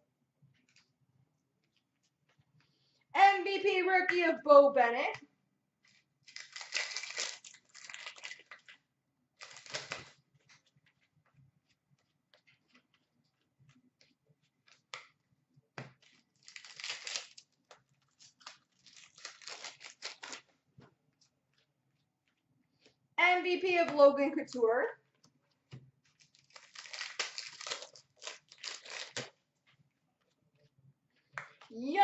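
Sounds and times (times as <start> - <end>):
cards clicking and rustling: 6.3 - 8.8, 9.4 - 10.6, 15.8 - 20.6, 26.1 - 29.4
wrappers tearing and crinkling: 6.3 - 8.8, 9.4 - 10.2, 16.1 - 20.5, 26.2 - 29.4.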